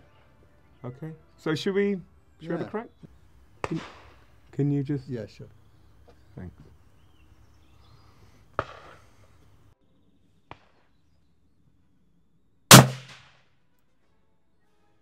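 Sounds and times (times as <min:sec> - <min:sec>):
suppressed rifle shot: 0:12.7 - 0:13.3.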